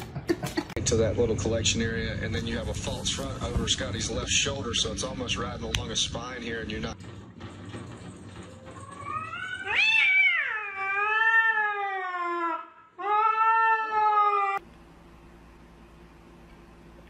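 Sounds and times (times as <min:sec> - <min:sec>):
cat yowling: 0:08.8 - 0:14.6.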